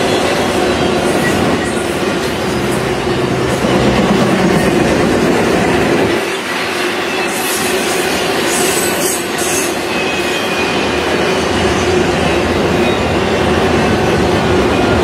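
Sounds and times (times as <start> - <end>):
freight train rolling past: 0.0 - 15.0
wheels clacking on rails: 0.0 - 15.0.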